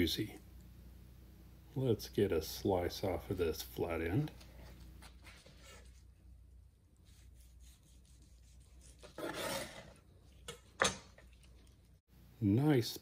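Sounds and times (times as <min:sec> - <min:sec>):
knife sawing through crusty meat: 0:07.1 - 0:10.0.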